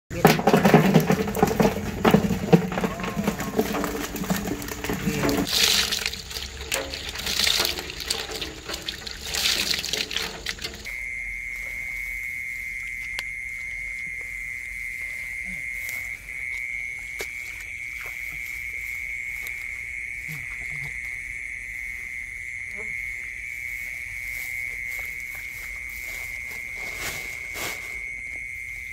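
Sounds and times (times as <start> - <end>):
fish splashing and flapping in water: 0.1 - 10.9
high-pitched insect trill: 3.1 - 28.9.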